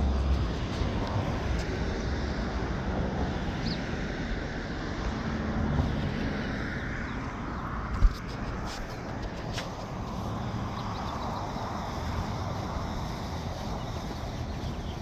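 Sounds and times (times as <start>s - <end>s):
car engines rumbling: 0.0s - 15.0s
tyre hiss: 8.3s - 15.0s.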